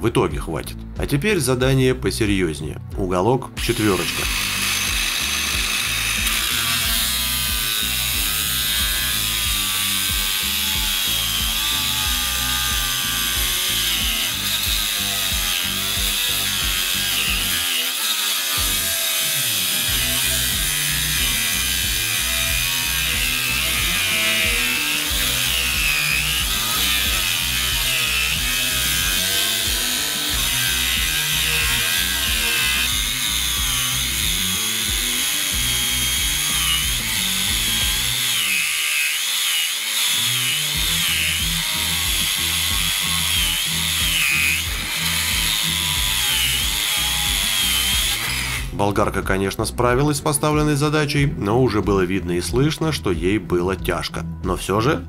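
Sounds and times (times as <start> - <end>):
angle grinder cutting steel: 3.6 - 48.8.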